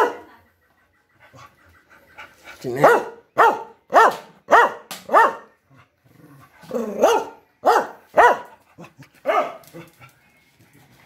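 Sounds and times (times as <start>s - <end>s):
dog barking: 0.0s - 0.3s, 2.8s - 5.6s, 7.0s - 8.6s, 9.2s - 9.6s.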